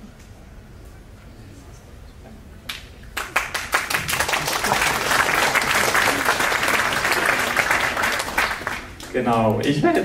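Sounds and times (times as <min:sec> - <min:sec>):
audience applauding: 0:03.2 - 0:09.8.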